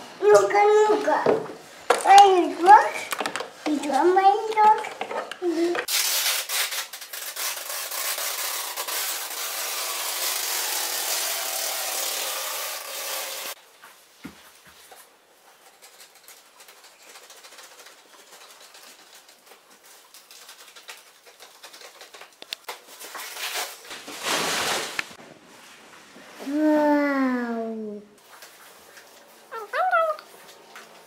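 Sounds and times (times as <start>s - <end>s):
steady rubbing noise: 7.7s - 13.6s
package rustling and scraping: 15.6s - 25.2s.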